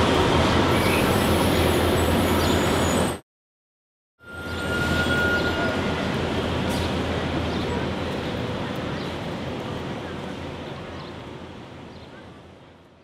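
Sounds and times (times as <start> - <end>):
indistinct chatter of passers-by: 5.5 - 13.0.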